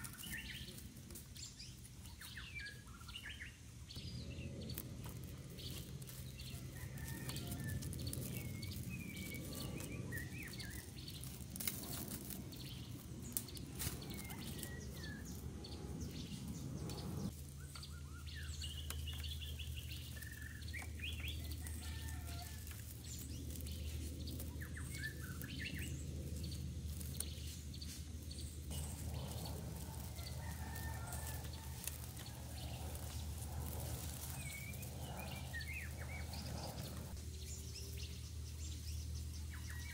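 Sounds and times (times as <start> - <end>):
birds chirping: 0.0 - 39.9
low steady hum: 0.0 - 39.9
bamboo sticks clicking: 4.6 - 14.7.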